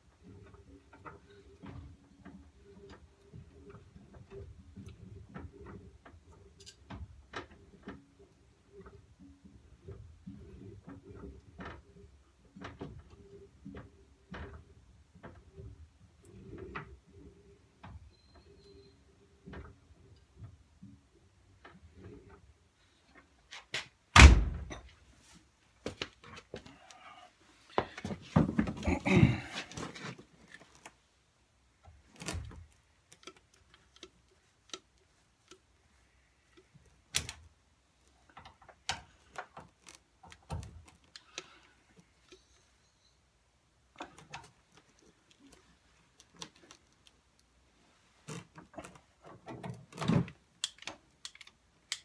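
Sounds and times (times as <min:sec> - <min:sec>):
tools and metal parts clicking: 0:06.6 - 0:06.9, 0:48.3 - 0:52.0.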